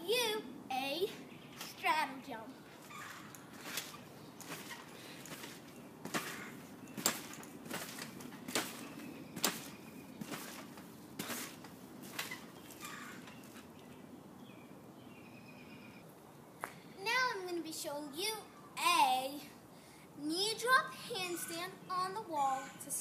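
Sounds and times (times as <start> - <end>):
trampoline mat thumping: 3.6 - 12.8.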